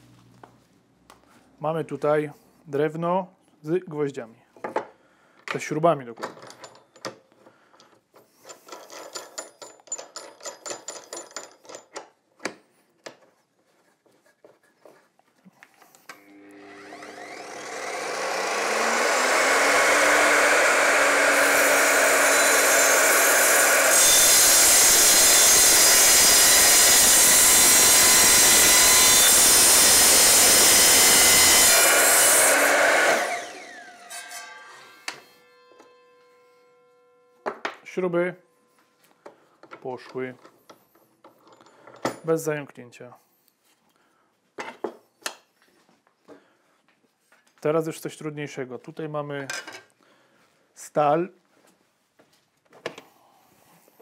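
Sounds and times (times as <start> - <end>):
mitre saw motor whining: 16.1 - 37.3
saw blade cutting wood: 16.2 - 37.4.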